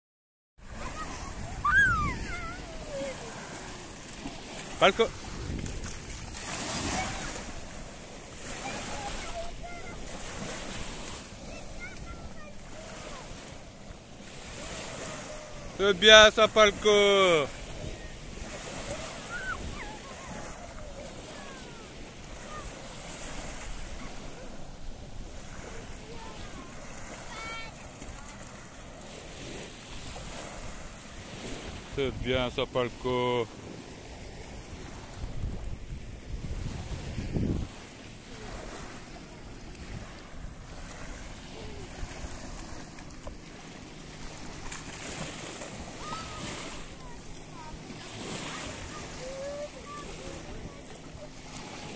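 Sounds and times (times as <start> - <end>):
waves washing on sandy shore: 0.6 - 51.9
wind buffeting microphone: 0.7 - 13.3, 34.6 - 43.0.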